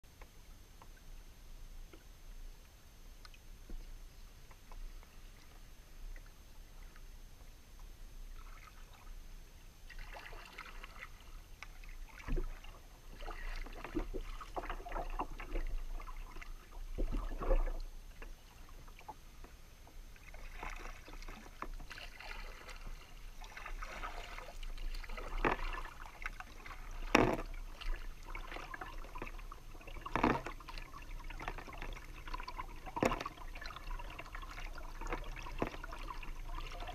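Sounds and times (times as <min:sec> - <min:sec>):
kayak paddle splashing water: 0:09.9 - 0:19.2, 0:20.1 - 0:36.9.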